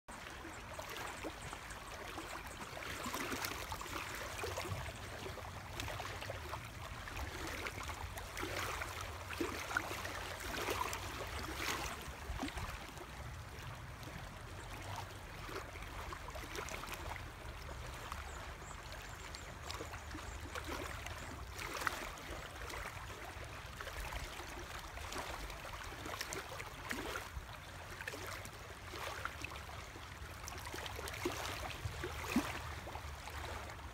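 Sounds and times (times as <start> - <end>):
small waves lapping against rocks: 0.1 - 33.9.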